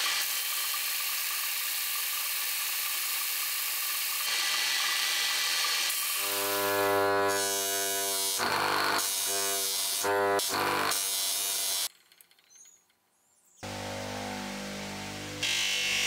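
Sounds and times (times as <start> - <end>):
polishing motor humming: 4.4 - 11.9, 13.6 - 16.0.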